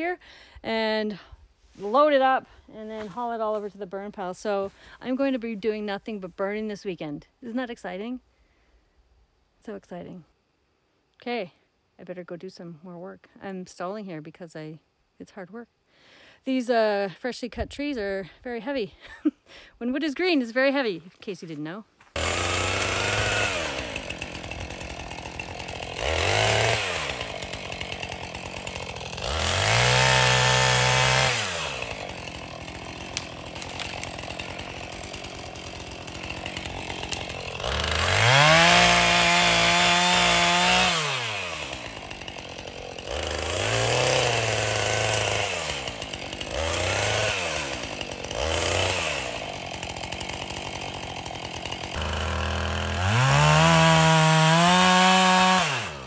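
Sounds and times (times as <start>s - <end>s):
distant chainsaw revving: 22.2s - 56.0s.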